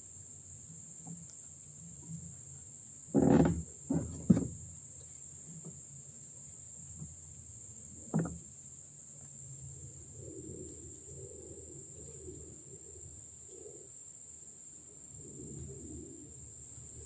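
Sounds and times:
insect drone: 0.0s - 17.0s
knocks against metal boat hull: 3.2s - 4.6s, 8.1s - 8.4s.

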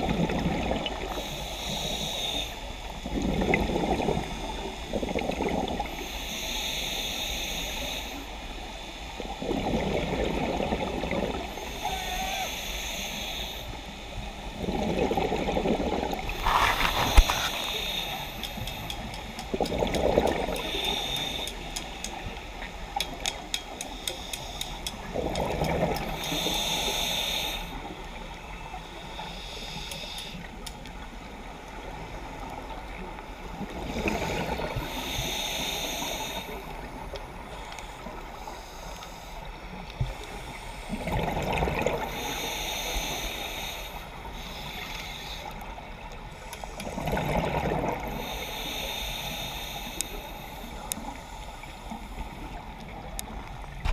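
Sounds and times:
exhaled bubbles gurgling: 0.0s - 1.3s, 3.0s - 6.0s, 9.2s - 12.0s, 14.6s - 21.2s, 25.0s - 26.5s, 31.3s - 35.1s, 40.8s - 42.5s, 46.7s - 48.5s
hiss of inhaled air: 1.1s - 2.8s, 5.9s - 8.4s, 11.5s - 14.5s, 16.3s - 19.5s, 20.4s - 22.4s, 23.8s - 25.0s, 26.1s - 28.0s, 28.9s - 30.6s, 34.1s - 36.8s, 42.1s - 45.7s, 48.1s - 52.5s
fast faint clicks: 16.8s - 22.3s, 22.9s - 26.4s, 29.8s - 30.9s.

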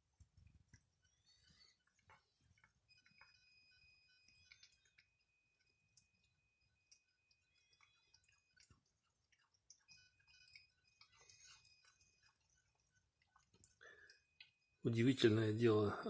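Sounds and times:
cat chewing meat: 1.2s - 14.6s.

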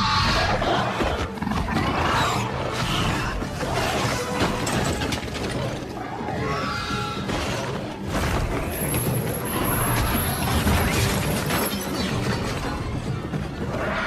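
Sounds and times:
creatures snarling and screeching: 0.0s - 11.7s, 13.6s - 14.0s
background music: 0.0s - 14.0s.

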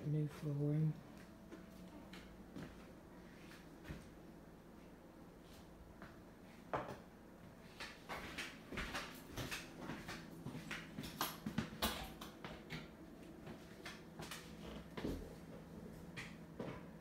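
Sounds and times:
faint steady hum: 0.0s - 17.0s
footsteps on hard floor: 1.1s - 4.2s, 7.7s - 17.0s.

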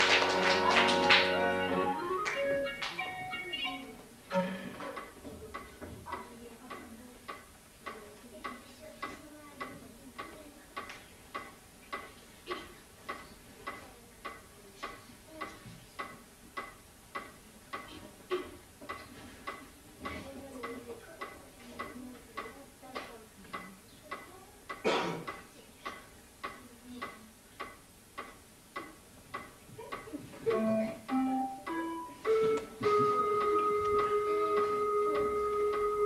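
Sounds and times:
clock-like ticking: 5.0s - 17.9s, 18.8s - 31.8s.

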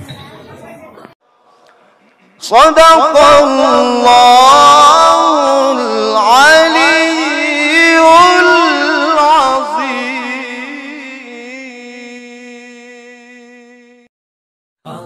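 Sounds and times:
person chanting: 2.4s - 14.1s.

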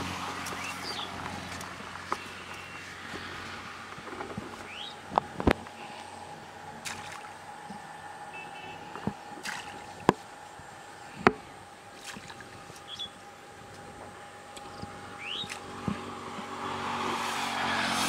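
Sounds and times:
faint steady hum: 0.0s - 17.2s
bird chirps: 0.6s - 1.6s, 4.6s - 5.0s, 12.8s - 13.2s, 14.6s - 15.6s.

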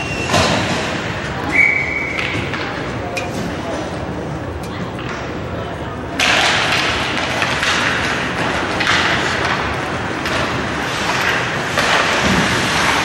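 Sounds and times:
skate blades scraping ice: 6.4s - 13.0s.

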